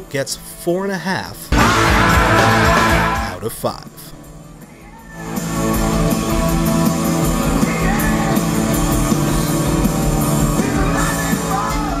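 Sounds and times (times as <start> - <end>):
loud rock band playing: 1.5 - 3.4, 5.2 - 12.0
person singing: 1.6 - 3.5, 10.6 - 12.0.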